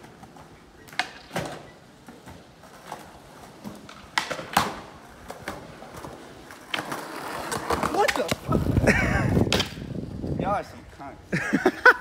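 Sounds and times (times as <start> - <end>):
skateboard clacking on concrete: 0.0 - 8.8, 9.4 - 9.9.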